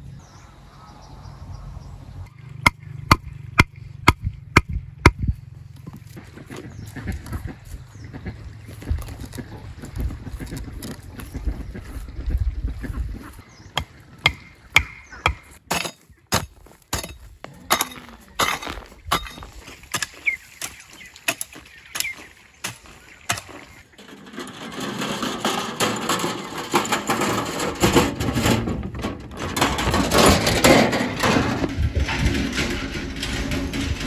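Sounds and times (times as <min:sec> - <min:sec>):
rough continuous noise: 0:00.0 - 0:34.0
hoe striking stony soil: 0:13.8 - 0:34.0.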